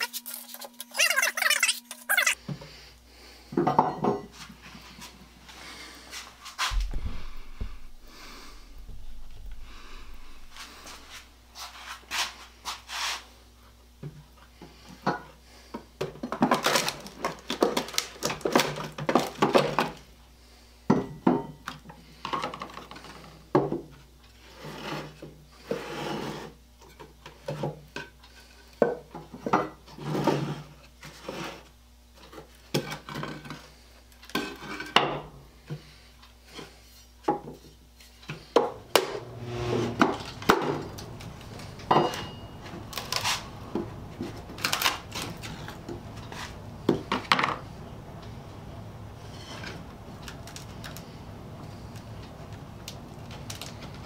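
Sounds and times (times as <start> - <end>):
wood scraping: 6.1 - 13.2, 38.4 - 47.6.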